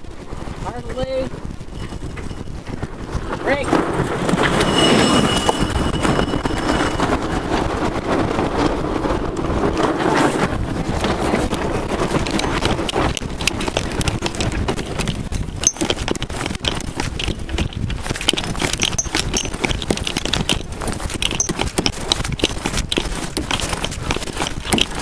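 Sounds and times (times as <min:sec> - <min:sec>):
wind buffeting microphone: 0:00.0 - 0:25.0
sailcloth rustling: 0:01.3 - 0:25.0
sharp knocks and clatter: 0:09.7 - 0:25.0.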